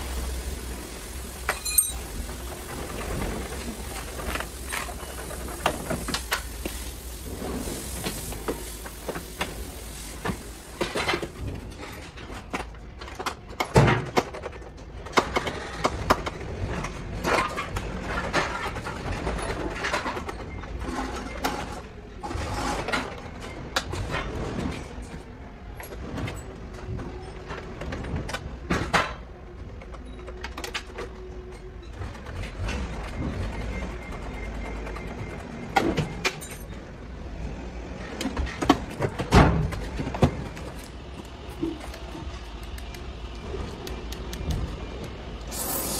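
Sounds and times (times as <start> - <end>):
hand tools clicking and scraping: 1.4 - 2.3.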